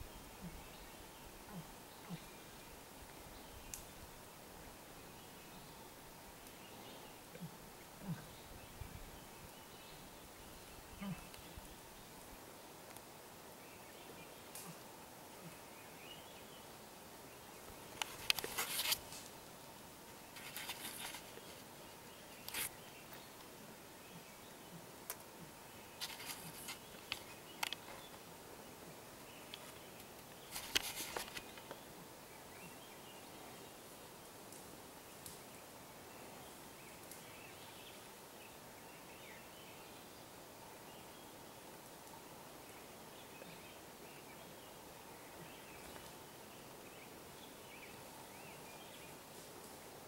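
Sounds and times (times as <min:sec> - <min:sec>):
faint steady hiss: 0:00.0 - 0:50.0
sharp crackles and snaps: 0:03.7 - 0:03.9, 0:12.8 - 0:13.1, 0:14.5 - 0:14.8, 0:17.7 - 0:19.5, 0:22.4 - 0:23.5, 0:25.0 - 0:25.3, 0:26.0 - 0:28.3, 0:29.5 - 0:31.8, 0:34.4 - 0:35.5, 0:37.0 - 0:37.3.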